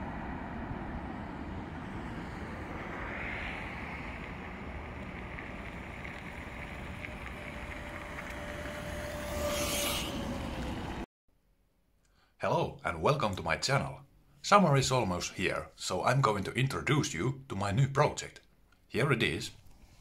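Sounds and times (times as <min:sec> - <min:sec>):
electric scooter motor whine: 0:00.0 - 0:11.0
wind noise on microphone: 0:00.0 - 0:11.0.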